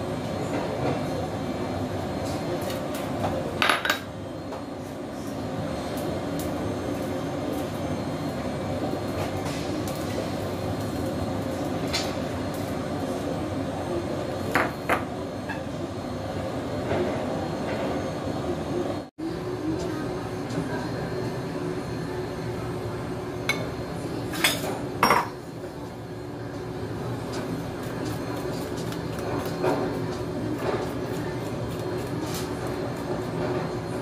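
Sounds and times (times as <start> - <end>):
dishes and utensils clinking: 24.3 - 25.4.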